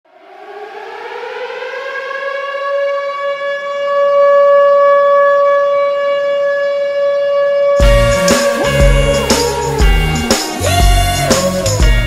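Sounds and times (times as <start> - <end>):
goal horn blast: 7.8 - 12.0.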